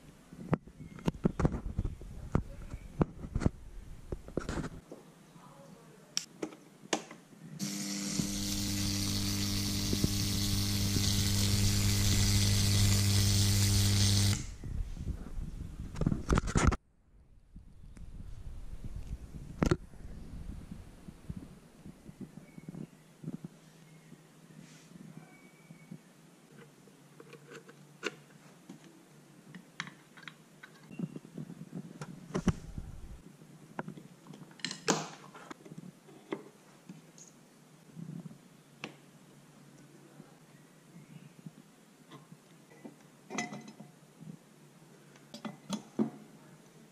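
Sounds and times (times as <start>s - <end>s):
crackling sparks: 7.6s - 14.6s
loud mains buzz: 7.6s - 14.6s.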